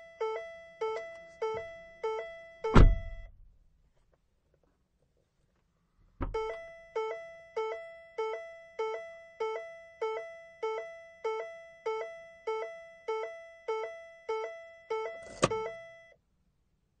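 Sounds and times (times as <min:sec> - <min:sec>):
two-tone car door chime: 0:00.0 - 0:03.3, 0:06.2 - 0:16.1
thud: 0:02.8 - 0:03.2.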